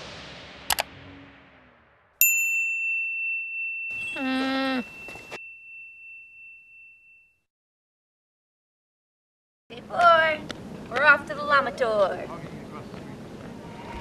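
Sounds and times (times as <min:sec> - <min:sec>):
bright ringing ding: 0:02.2 - 0:07.5
bleat-like call: 0:04.2 - 0:04.9.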